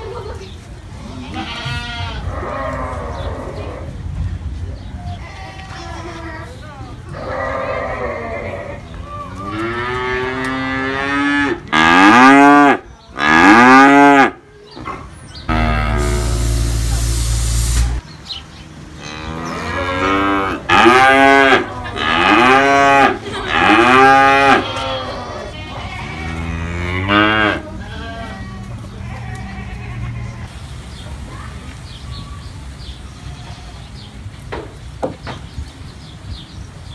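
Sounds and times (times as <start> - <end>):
calves mooing: 1.3 - 3.8, 15.5 - 16.6, 19.0 - 30.4.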